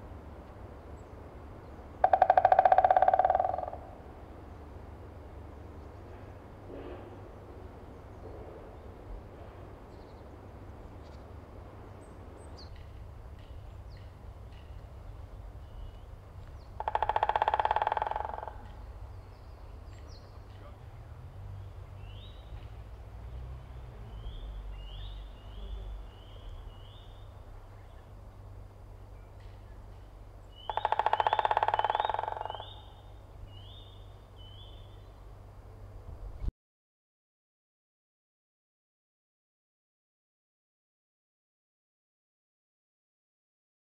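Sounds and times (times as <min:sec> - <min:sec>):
woodpecker drumming on wood: 0:02.0 - 0:04.0, 0:16.3 - 0:19.0, 0:30.5 - 0:33.2.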